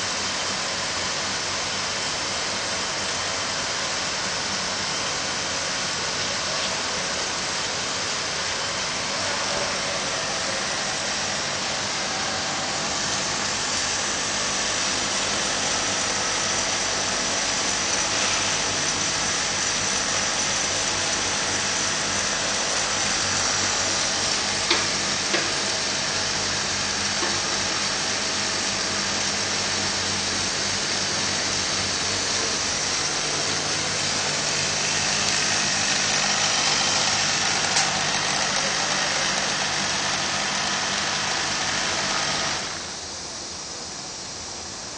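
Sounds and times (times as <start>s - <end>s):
overlock machine whirring: 0.0s - 43.7s.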